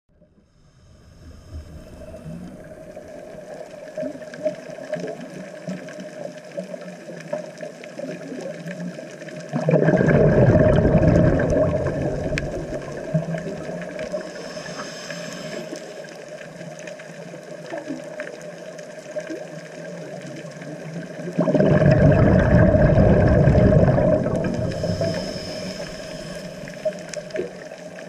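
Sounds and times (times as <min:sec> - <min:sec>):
underwater hiss: 0:00.2 - 0:05.2, 0:09.2 - 0:17.3, 0:21.3 - 0:28.0
diver's bubbles gurgling: 0:01.7 - 0:14.8, 0:15.4 - 0:28.0
faint crackling clicks: 0:02.1 - 0:28.0.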